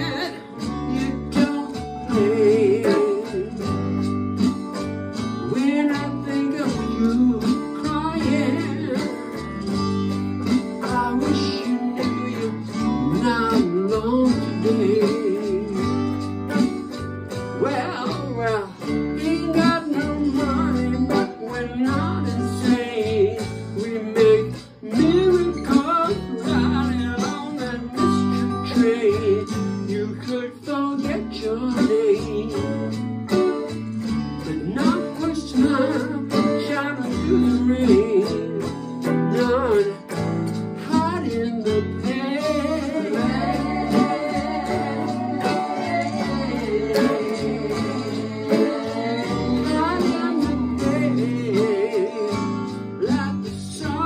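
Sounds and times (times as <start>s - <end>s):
electric guitar lead: 0.0s - 54.0s
bass line: 39.4s - 51.7s.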